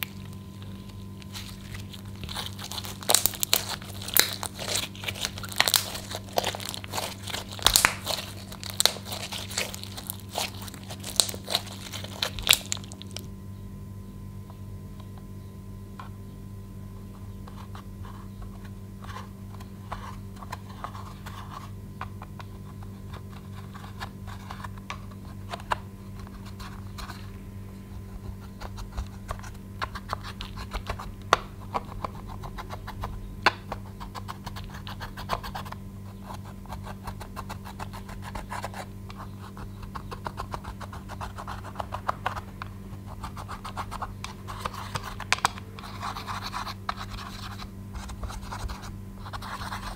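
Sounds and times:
stick scraping eyeshadow: 0.0 - 13.2, 36.2 - 49.9
steady low hum: 0.0 - 49.9.

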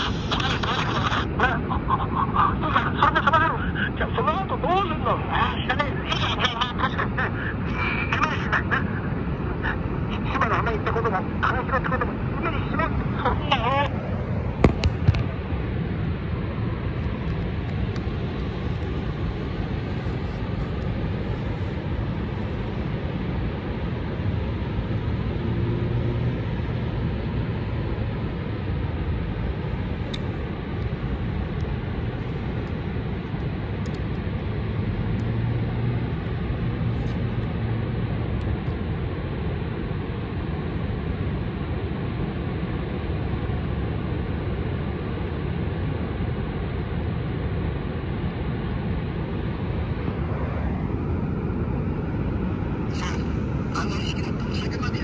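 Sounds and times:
radio static hiss: 0.0 - 26.8, 48.6 - 55.0.

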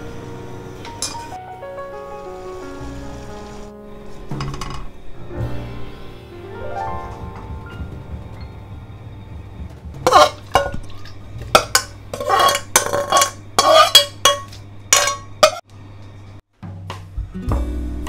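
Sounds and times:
faint background music: 0.0 - 15.6, 16.6 - 18.0
metal spoon scraping a saucepan: 10.0 - 15.6.

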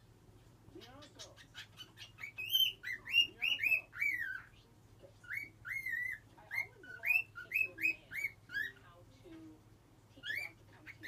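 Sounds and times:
cockatiel whistling: 5.3 - 8.7.

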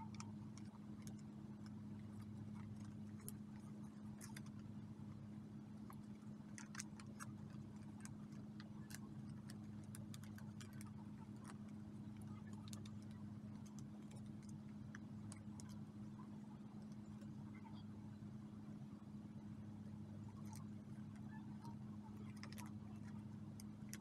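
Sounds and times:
steady low hum: 0.0 - 24.0
paper clicks and crinkles: 5.8 - 15.8, 22.2 - 24.0.

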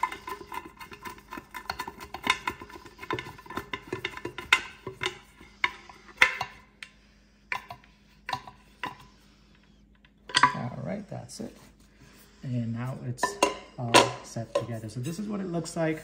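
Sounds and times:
small clicks and scrapes: 0.0 - 10.2.

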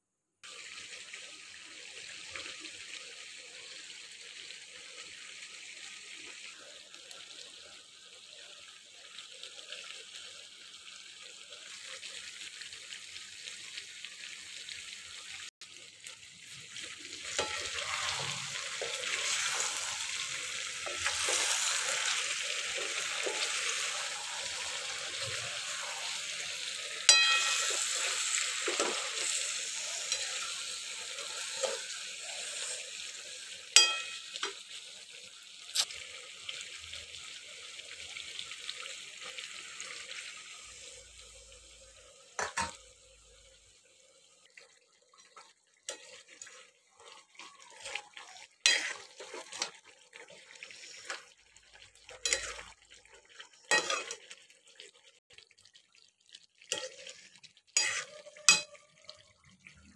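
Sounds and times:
curry sizzling in a pot: 0.4 - 59.9
spoon knocking and scraping pot: 27.1 - 27.8, 33.8 - 34.5, 42.4 - 42.8, 57.8 - 58.8.

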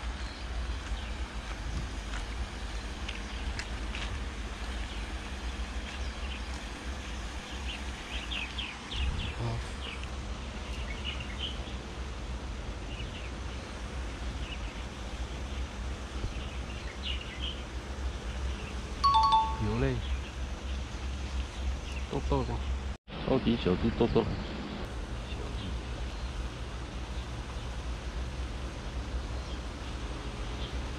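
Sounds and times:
low outdoor rumble: 0.0 - 30.9
bird chirps: 14.4 - 22.6.

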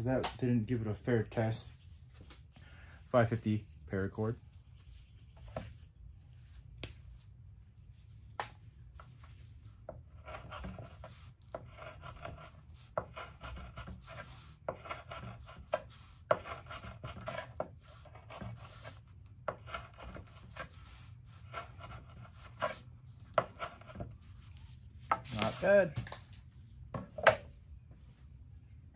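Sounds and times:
knife cutting cord on wooden board: 9.9 - 20.7, 21.5 - 24.2
rasping of cord being sawn: 10.1 - 20.8, 21.4 - 24.2.

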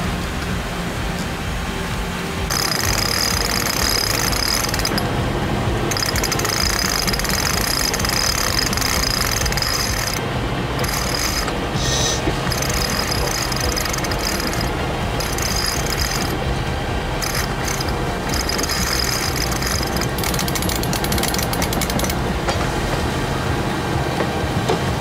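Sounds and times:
winch pawls clicking rapidly: 2.5 - 5.0, 5.9 - 10.2, 10.8 - 11.6, 12.5 - 16.4, 17.2 - 22.2.

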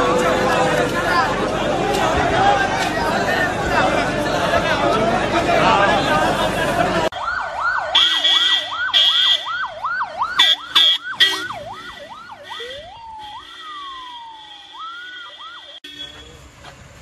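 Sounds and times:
crowd noise: 0.0 - 16.8
emergency siren yelping: 7.1 - 15.8
short horn blasts: 10.4 - 16.4.

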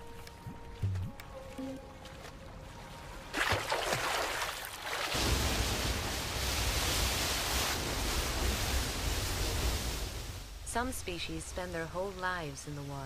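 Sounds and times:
rushing water: 0.3 - 10.6
water splashing: 0.6 - 10.6.

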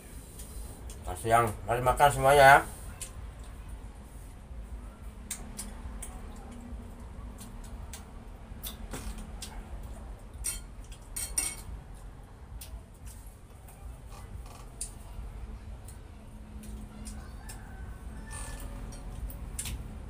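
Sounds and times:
china plates and spoon clinking: 10.4 - 11.7.

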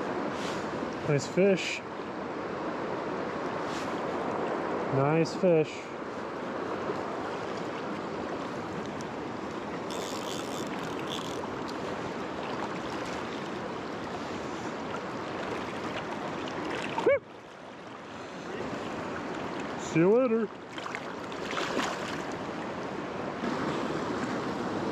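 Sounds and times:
river water rushing over rocks: 0.0 - 24.9.

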